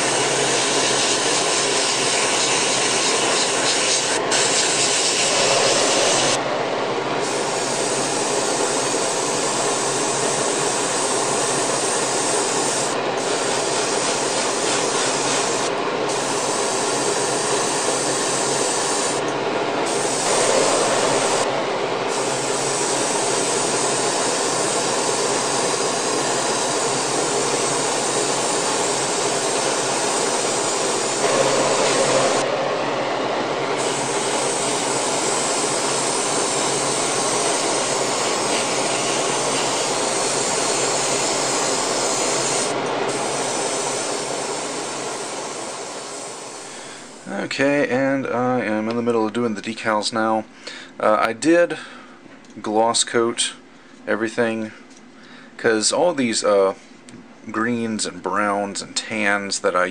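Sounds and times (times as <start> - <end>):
airbrush spraying: 0.0 - 6.4, 7.2 - 19.2, 19.9 - 21.5, 22.1 - 32.5, 33.7 - 47.3
spray booth fan running: 0.0 - 49.7.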